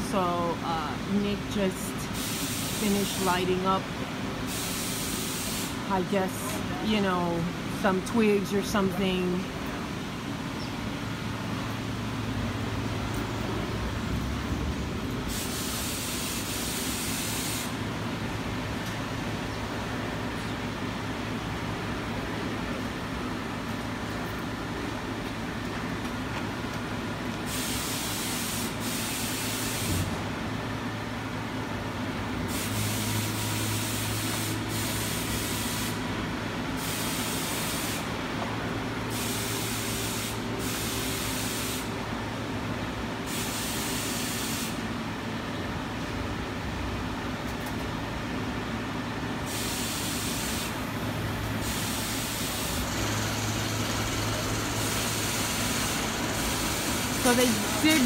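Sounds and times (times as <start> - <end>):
loud spraying hiss: 2.1 - 3.3, 4.4 - 5.9, 15.3 - 17.8, 27.5 - 30.1, 32.5 - 36.0, 36.8 - 38.1, 39.1 - 41.9, 43.2 - 44.8, 49.4 - 50.9, 51.6 - 53.4, 54.6 - 58.0
machinery humming: 50.7 - 58.0.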